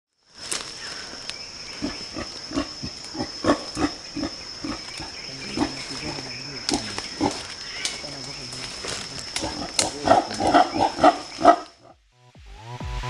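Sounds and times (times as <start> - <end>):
gorilla grunting: 1.7 - 7.5, 8.6 - 12.0.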